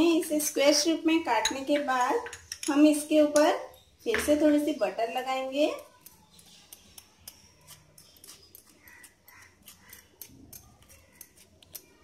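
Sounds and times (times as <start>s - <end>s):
knife scraping toasted bread: 5.9s - 12.0s.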